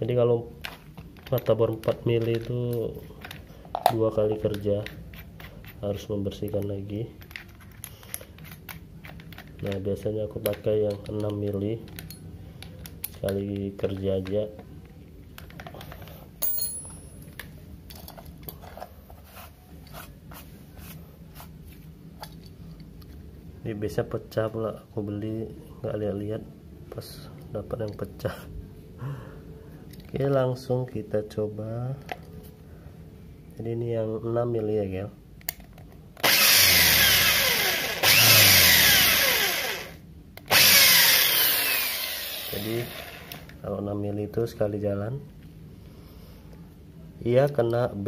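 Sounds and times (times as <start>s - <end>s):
steady low hum: 0.0s - 48.0s
electric drill drilling metal: 36.2s - 43.5s.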